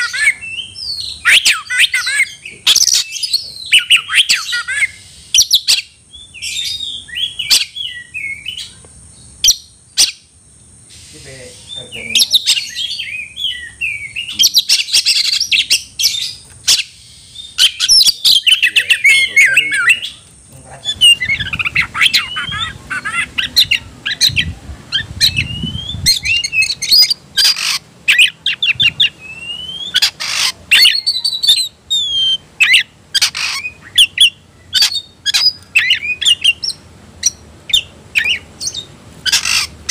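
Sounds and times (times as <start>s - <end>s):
bird singing whistled phrases: 0.0s - 8.7s, 20.9s - 39.6s.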